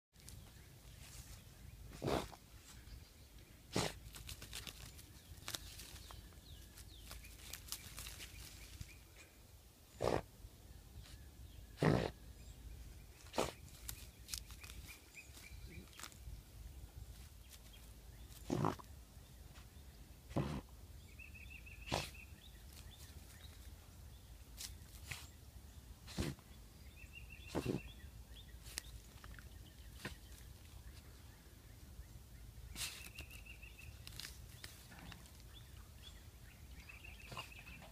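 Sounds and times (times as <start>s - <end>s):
dry leaves and roots crackling: 0.2s - 9.3s, 13.0s - 18.8s, 21.6s - 25.6s, 27.2s - 31.4s, 32.6s - 37.9s
dog snorting: 2.0s - 2.4s, 11.8s - 12.2s, 18.4s - 18.9s, 20.3s - 20.7s, 27.5s - 27.9s
bird chirping trills: 26.5s - 37.9s.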